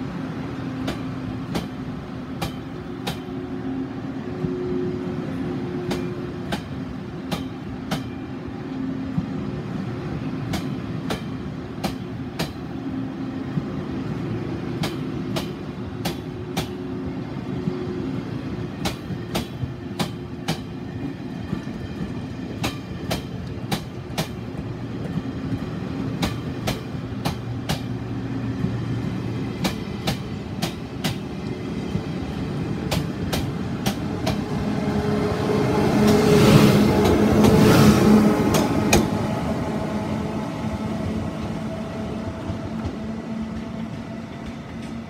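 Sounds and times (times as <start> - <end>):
train rumbling past: 0.0 - 45.0
train wheels clicking over rail joints: 0.8 - 3.3, 10.5 - 12.7, 14.8 - 16.8, 18.8 - 28.0, 29.6 - 32.1, 32.8 - 34.5, 36.0 - 39.2.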